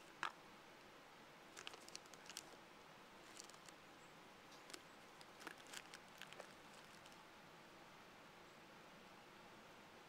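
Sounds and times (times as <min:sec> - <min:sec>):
plastic packaging crinkling: 0:01.6 - 0:02.6, 0:03.2 - 0:03.8, 0:04.6 - 0:07.2.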